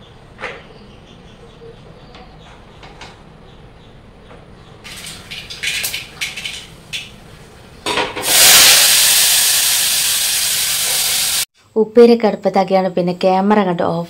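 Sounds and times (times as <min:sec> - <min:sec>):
beans sizzling in hot oil: 0:08.2 - 0:11.5.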